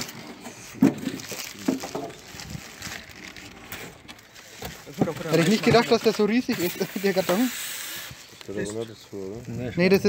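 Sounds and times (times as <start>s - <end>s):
cardboard scraping and rustling: 0.0s - 7.5s.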